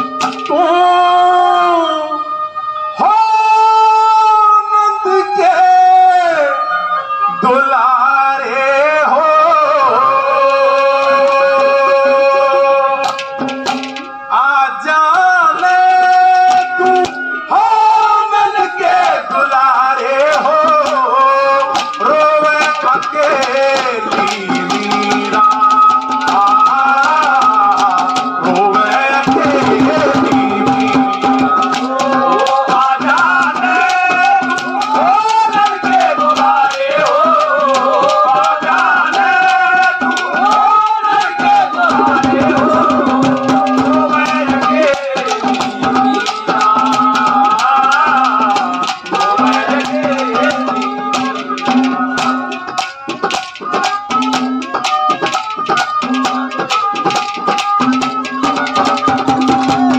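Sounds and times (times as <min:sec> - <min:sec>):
hand drum beat: 0:00.0 - 0:00.8, 0:10.4 - 0:14.2, 0:16.0 - 0:17.3, 0:20.3 - 0:59.9
jingling percussion: 0:00.0 - 0:01.0, 0:10.0 - 0:14.5, 0:15.1 - 0:59.9
sliding melody: 0:28.3 - 0:32.5, 0:41.5 - 0:46.7.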